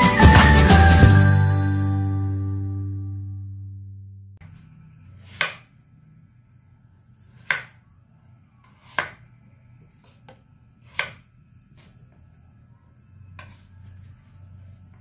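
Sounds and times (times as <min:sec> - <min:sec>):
low steady hum: 0:01.8 - 0:08.6
knife chopping on wooden board: 0:05.2 - 0:05.7, 0:07.3 - 0:07.8, 0:08.6 - 0:09.3, 0:10.0 - 0:11.2, 0:13.4 - 0:13.7.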